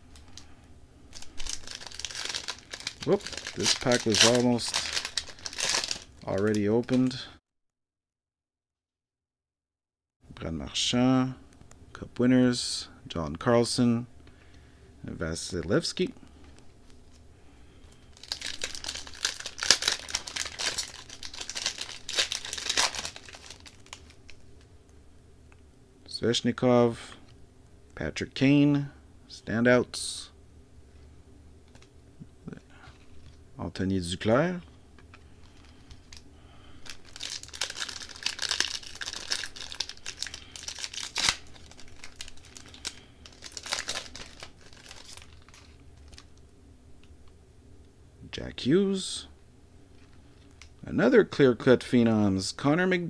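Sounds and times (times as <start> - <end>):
card pack wrapper crinkling: 1.1 - 7.3, 18.1 - 24.7, 35.0 - 46.4.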